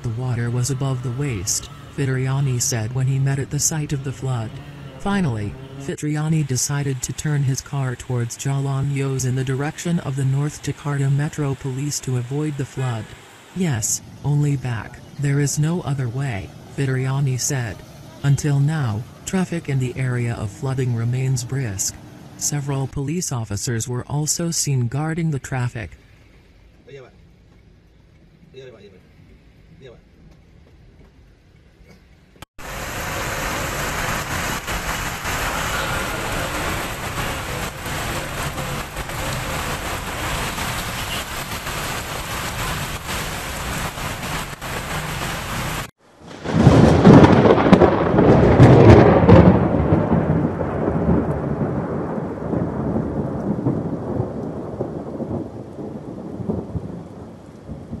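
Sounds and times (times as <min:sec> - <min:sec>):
heavy rain pouring: 0:00.0 - 0:25.9, 0:32.6 - 0:58.0
deep rolling rumble: 0:32.6 - 0:44.8.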